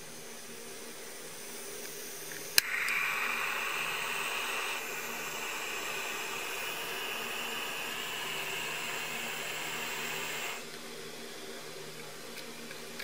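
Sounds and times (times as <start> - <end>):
gas burning hiss: 0.0 - 10.8
igniter click: 2.6 - 10.6.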